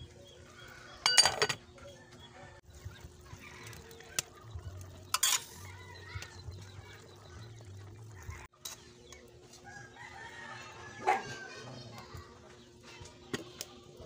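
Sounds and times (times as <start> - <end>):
spoon clinking against pot: 1.0 - 1.6, 5.1 - 5.6.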